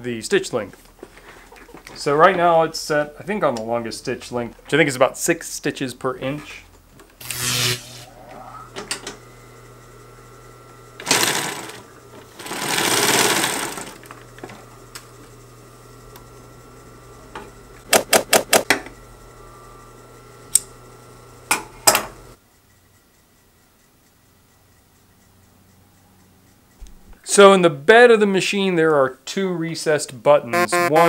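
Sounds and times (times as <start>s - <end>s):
motor hum: 6.5s - 22.4s
sewing machine stitching: 11.0s - 14.5s.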